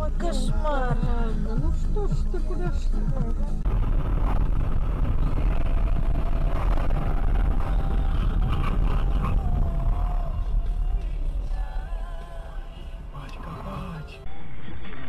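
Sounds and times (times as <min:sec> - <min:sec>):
car road and engine rumble: 0:00.0 - 0:14.3
tyre and wind noise: 0:03.6 - 0:11.2.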